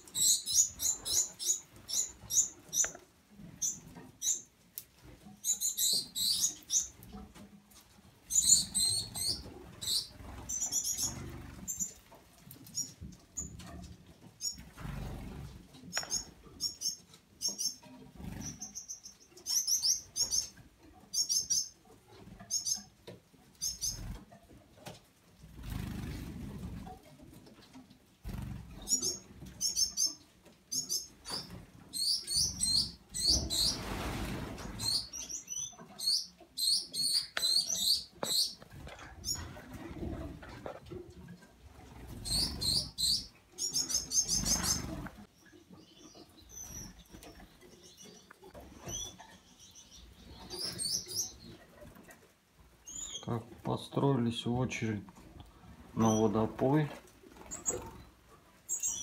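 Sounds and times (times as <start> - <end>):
finches chirping: 0.0 - 3.0, 8.3 - 12.0, 15.9 - 21.8, 28.8 - 33.8, 34.7 - 39.6, 42.2 - 45.0, 45.8 - 51.5, 52.8 - 53.3, 58.7 - 59.0.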